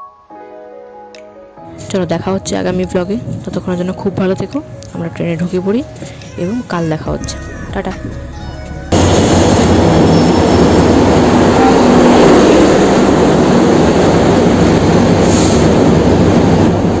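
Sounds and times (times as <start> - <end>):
train wheels rumbling on rails: 8.9 - 17.0.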